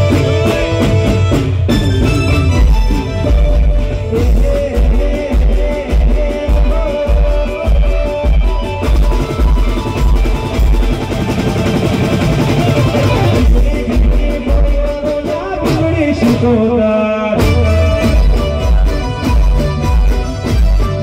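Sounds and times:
keyboard melody: 0.0s - 14.2s, 17.4s - 21.0s
heavy drum beat: 0.0s - 21.0s
person singing: 3.8s - 9.0s, 13.0s - 19.9s.

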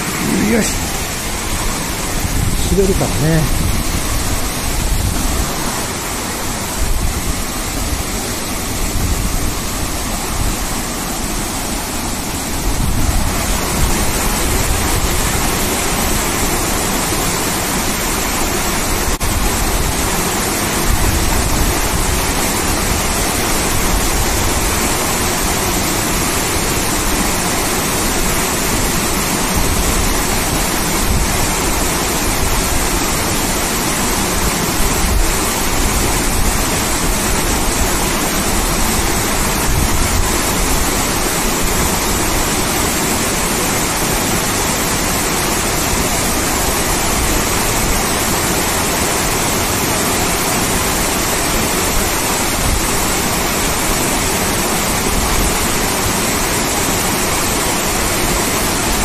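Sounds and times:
waterfall rushing into pool: 0.0s - 59.0s.

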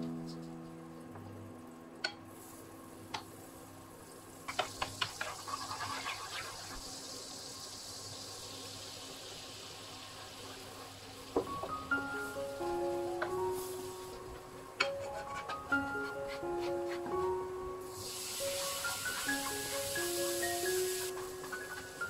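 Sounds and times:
butter sizzling in frying pan: 4.2s - 14.3s, 17.8s - 22.0s.

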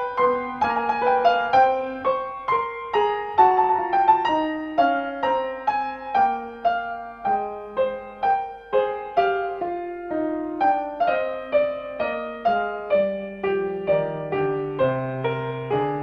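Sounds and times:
solo piano music: 0.0s - 16.0s.

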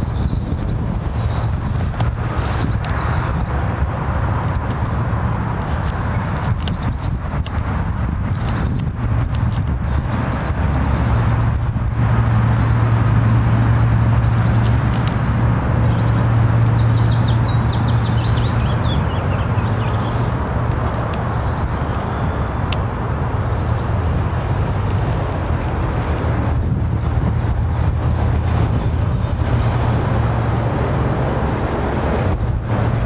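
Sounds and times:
outdoor rumble and rush: 0.0s - 33.0s
small birds chirping: 15.8s - 21.8s.

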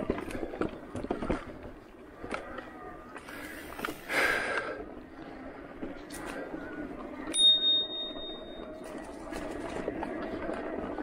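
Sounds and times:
bicycle riding noise: 0.0s - 11.0s
bicycle bell ding: 7.3s - 8.8s.

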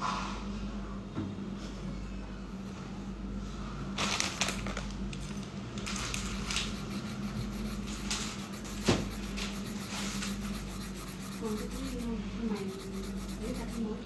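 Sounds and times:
objects rustling and scraping: 3.4s - 12.6s
steady low hum: 4.9s - 14.0s.

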